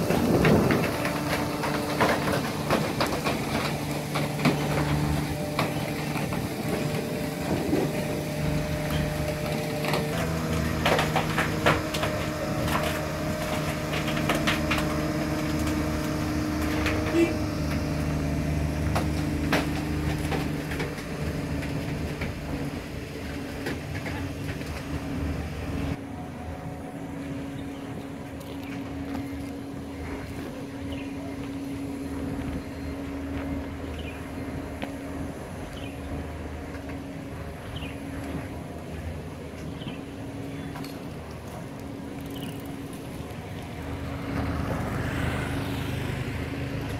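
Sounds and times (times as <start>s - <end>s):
knocks and creaks: 0.0s - 26.0s
heavy diesel engine droning: 0.0s - 46.9s.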